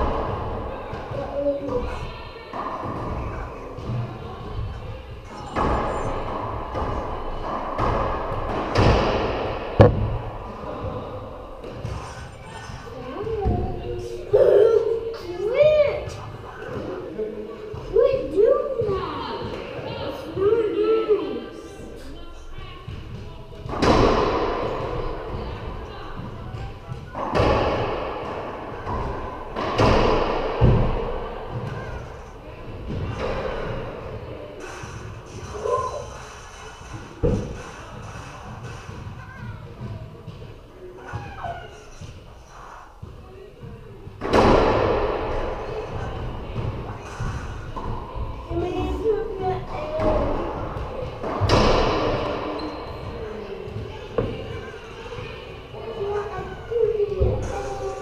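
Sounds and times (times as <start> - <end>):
ball striking court walls: 7.7 - 10.9.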